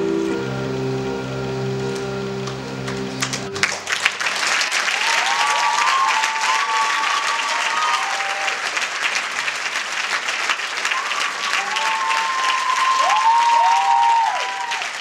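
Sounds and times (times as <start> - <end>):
audience applauding: 2.8 - 15.0
cheering whoops and whistles: 4.9 - 8.7, 10.8 - 15.0.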